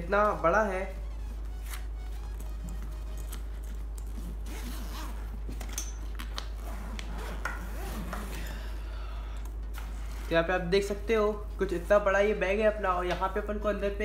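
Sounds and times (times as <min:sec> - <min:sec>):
fabric handling: 0:00.0 - 0:08.7
steady low hum: 0:00.0 - 0:14.0
zipper being pulled open: 0:01.6 - 0:08.5.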